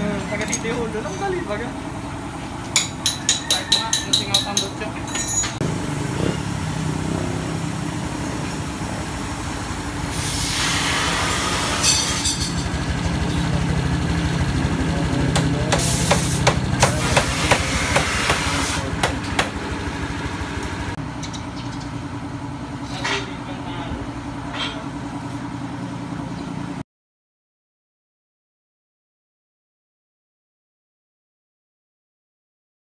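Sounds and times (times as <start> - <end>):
engine idling: 0.0 - 26.8
hiss: 10.1 - 11.8.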